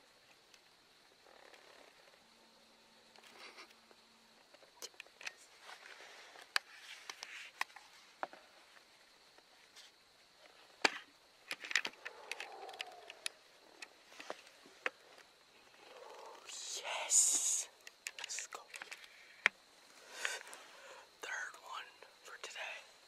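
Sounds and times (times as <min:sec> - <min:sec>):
pine woods ambience: 0:00.0 - 0:23.0.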